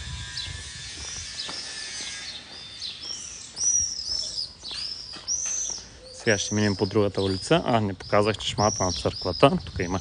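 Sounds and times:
birds chirping: 0.0s - 10.0s
outdoor background noise: 0.0s - 10.0s.

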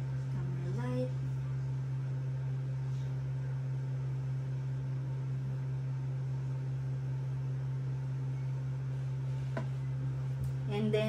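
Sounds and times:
low hum: 0.0s - 11.0s
object tapped on desk: 9.5s - 9.8s.

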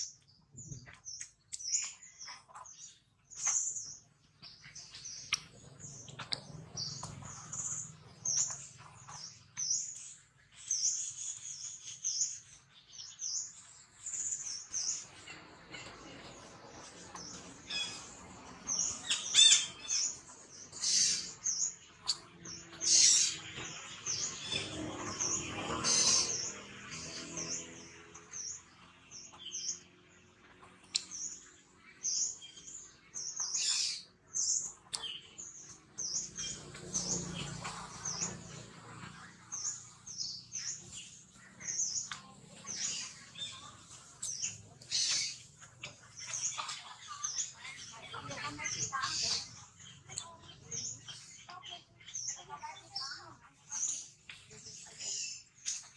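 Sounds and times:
small birds chirping: 0.0s - 55.9s.

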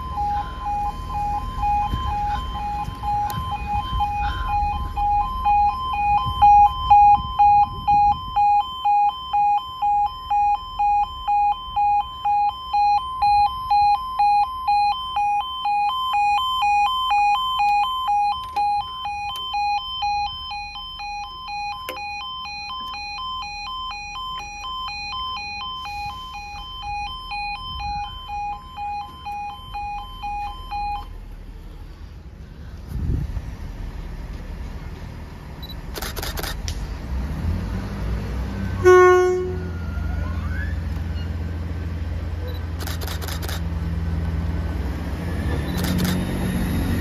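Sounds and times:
level crossing warning beeps: 0.0s - 31.2s, 35.6s - 36.5s, 42.4s - 43.6s.

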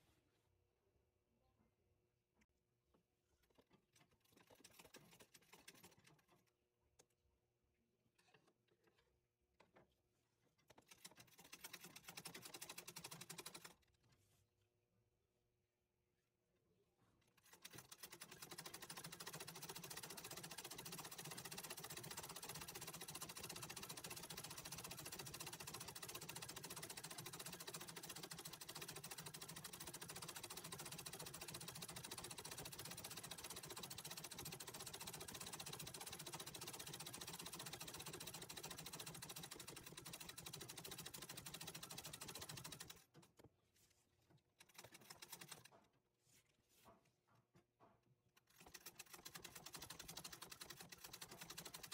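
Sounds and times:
sewing machine stitching: 3.4s - 6.6s, 10.5s - 14.1s, 17.2s - 43.5s, 44.5s - 45.9s, 48.4s - 51.9s.

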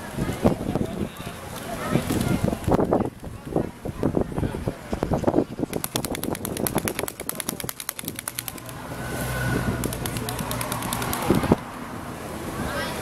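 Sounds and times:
rapid even ticking: 5.7s - 8.9s, 9.8s - 11.6s.

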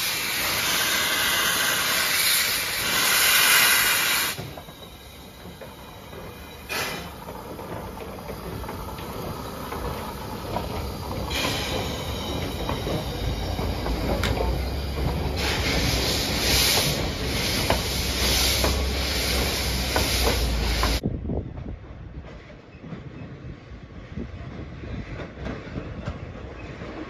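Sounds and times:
rushing steam hiss surges: 0.0s - 21.0s
steam hissing: 0.0s - 21.0s
low train rumble: 0.0s - 27.0s
wheels clicking over rail joints: 4.3s - 23.5s.

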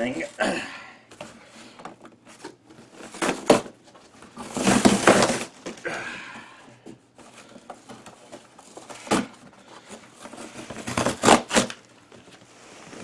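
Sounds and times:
cardboard creaks and rustles: 1.1s - 5.8s, 6.8s - 13.0s
cardboard box tearing: 2.8s - 3.8s, 4.4s - 5.6s, 10.2s - 11.8s
sharp crack of cardboard: 3.0s - 3.8s, 4.4s - 5.8s, 10.3s - 11.8s.

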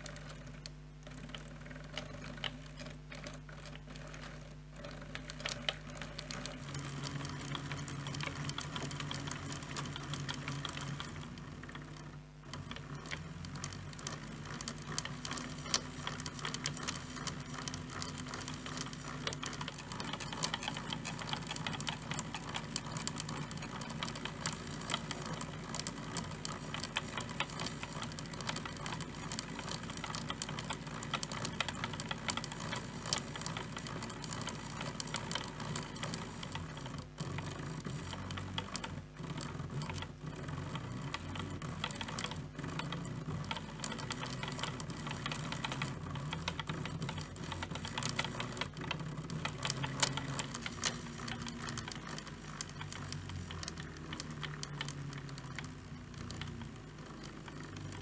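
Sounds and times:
stepper motor clattering: 0.0s - 58.0s.

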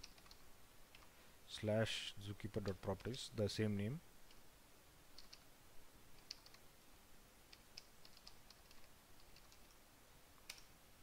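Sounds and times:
faint keyboard typing: 0.0s - 1.1s, 5.1s - 5.5s, 6.1s - 6.7s, 7.5s - 9.8s, 10.4s - 10.8s.

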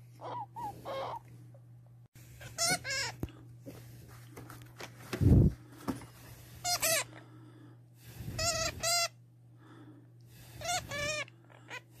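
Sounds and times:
hamster squeaking: 0.2s - 1.3s, 2.4s - 3.2s, 8.4s - 9.2s.

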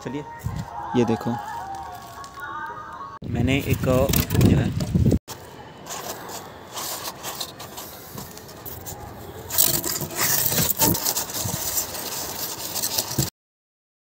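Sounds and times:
polystyrene foam rubbing: 5.8s - 13.3s.

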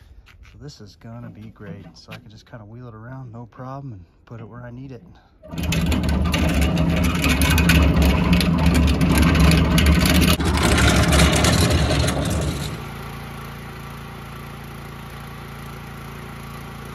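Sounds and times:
cart casters rumbling on asphalt: 5.4s - 13.0s
small engine humming: 5.4s - 16.9s.

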